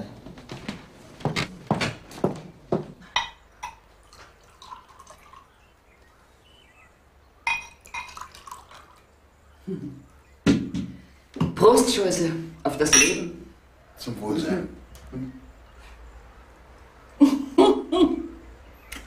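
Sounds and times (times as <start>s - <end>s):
glass clinks: 3.1s - 3.9s, 7.4s - 8.3s, 12.8s - 13.4s
liquid trickling into glass: 3.6s - 5.8s, 7.4s - 9.1s.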